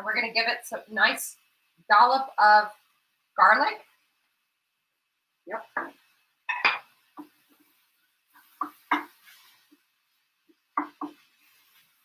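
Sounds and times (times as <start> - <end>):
wooden spoon stirring in a skillet: 6.9 - 12.0
spoon tapping against pan: 8.5 - 9.2, 10.7 - 11.2.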